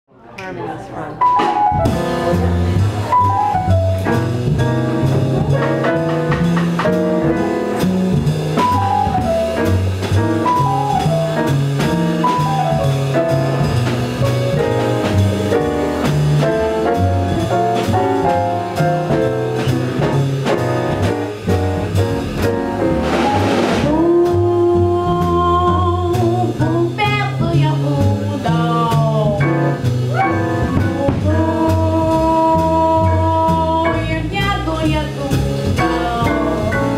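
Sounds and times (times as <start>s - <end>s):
jazz combo playing: 1.1s - 36.9s
woman singing long notes: 23.8s - 29.5s, 30.2s - 36.9s.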